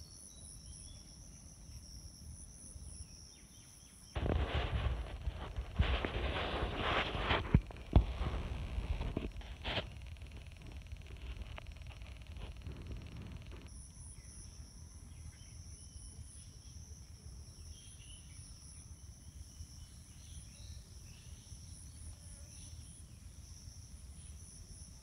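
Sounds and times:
insects chirring: 0.0s - 25.0s
low steady rumble: 4.2s - 13.7s.

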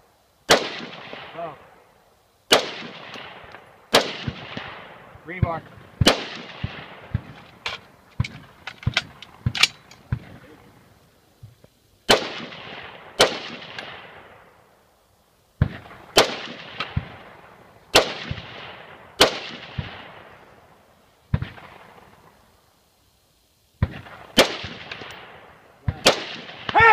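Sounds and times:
rifle shots echoing: 0.5s - 1.8s, 2.5s - 10.5s, 12.1s - 14.6s, 15.6s - 20.6s, 21.3s - 22.4s, 23.8s - 26.9s.

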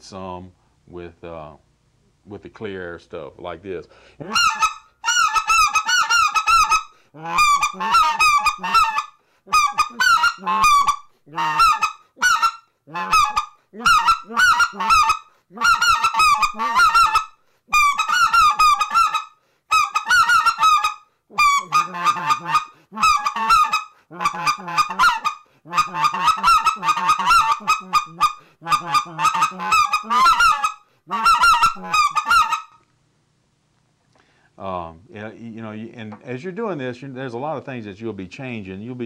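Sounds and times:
goose call honks and clucks: 4.2s - 32.8s.

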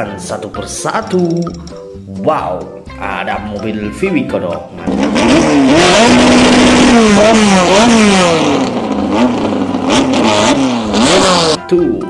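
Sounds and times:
car engine revving: 4.8s - 11.6s.

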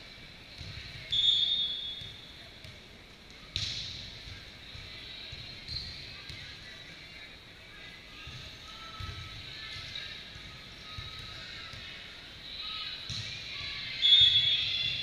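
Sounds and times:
referee's whistle blast: 1.1s - 2.1s
volleyball hit with sharp smack: 3.5s - 4.0s.

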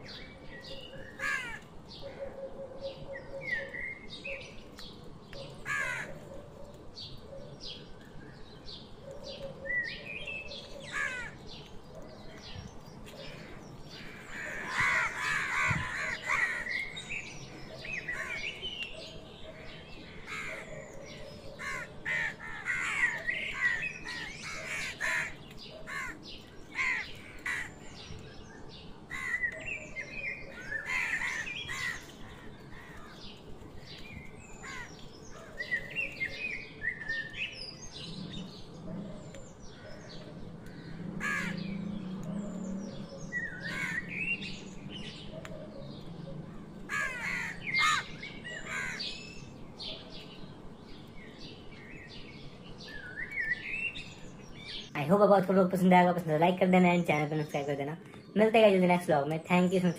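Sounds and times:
crows cawing: 1.1s - 2.4s, 5.6s - 6.3s, 10.7s - 11.5s, 13.3s - 17.1s, 18.1s - 18.6s, 20.2s - 20.9s, 21.6s - 28.0s, 29.1s - 29.6s, 30.5s - 33.3s, 34.6s - 35.8s, 39.7s - 41.8s, 43.5s - 44.4s, 46.5s - 49.4s.

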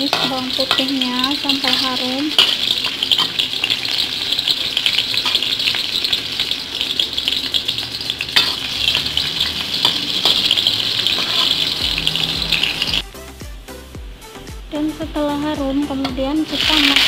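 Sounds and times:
metal spatula scraping wok: 0.0s - 13.0s
garlic sizzling in hot oil: 0.0s - 13.1s, 14.8s - 17.0s.

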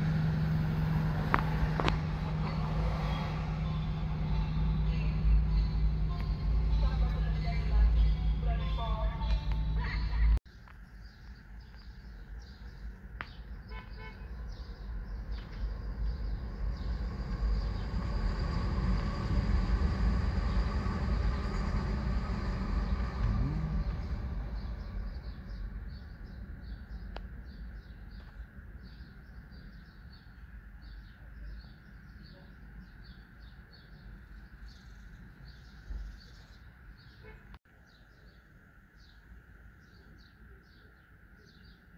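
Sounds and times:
vehicle passing by: 0.0s - 8.6s, 15.0s - 26.6s
birds chirping: 0.0s - 41.9s
low street hum: 0.0s - 41.9s.

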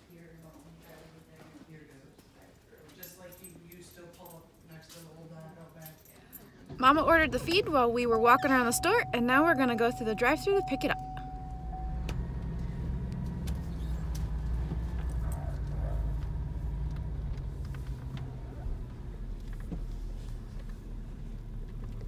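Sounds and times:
car engine and road hum: 6.7s - 22.0s.

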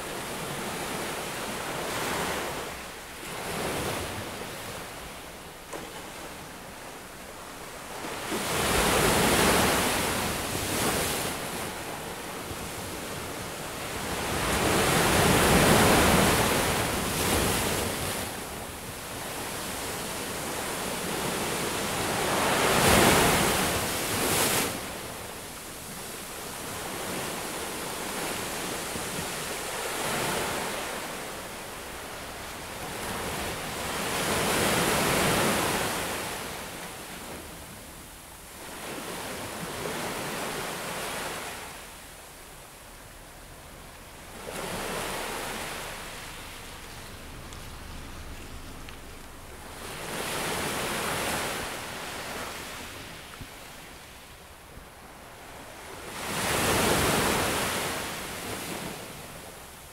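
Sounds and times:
ocean surf washing onto beach: 0.0s - 59.9s.

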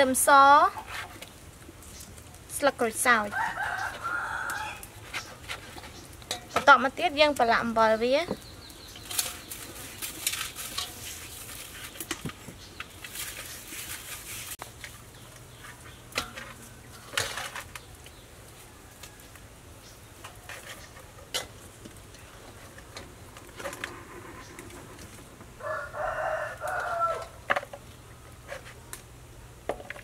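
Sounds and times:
salt rubbed into fish: 9.2s - 12.1s, 13.0s - 14.6s.

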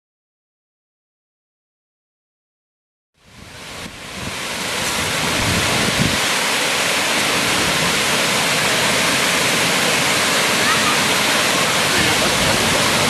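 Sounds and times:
waterfall rushing into pool: 3.2s - 13.0s.

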